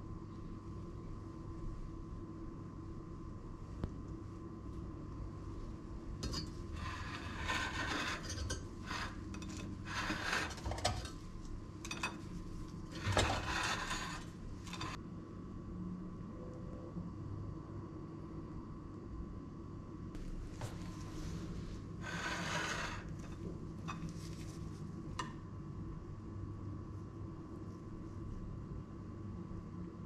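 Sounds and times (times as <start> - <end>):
faint steady hum: 0.0 - 30.0
kitchenware scraping and clinking: 6.2 - 15.0, 22.0 - 24.6.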